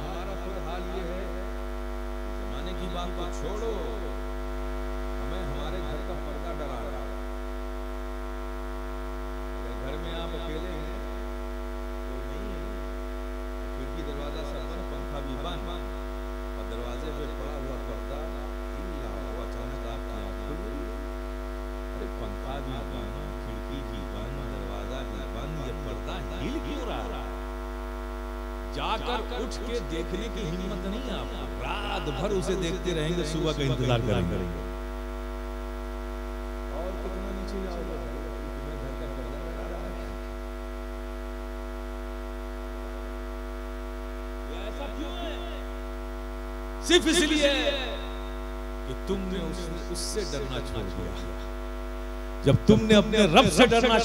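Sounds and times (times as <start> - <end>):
man speaking over loudspeaker: 0.0 - 1.4, 2.5 - 4.1, 5.2 - 7.1, 9.6 - 11.0, 13.8 - 16.0, 16.6 - 21.0, 22.0 - 27.3, 28.8 - 34.7, 36.8 - 40.2, 44.5 - 45.7, 46.8 - 51.5, 52.4 - 54.0
electrical mains hum: 0.0 - 54.0.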